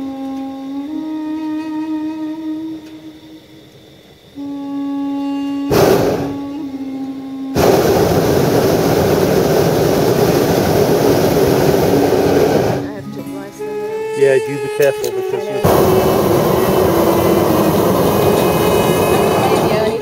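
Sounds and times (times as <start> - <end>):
flute music: 0.0 - 3.7, 4.4 - 8.4, 11.6 - 20.0
propane burner roaring: 5.6 - 6.6, 7.5 - 20.0.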